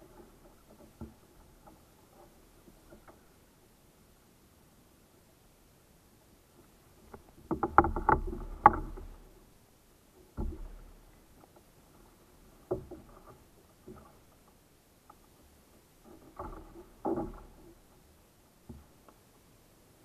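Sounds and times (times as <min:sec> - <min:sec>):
fishing gear knocking on plastic hull: 0:07.4 - 0:09.2.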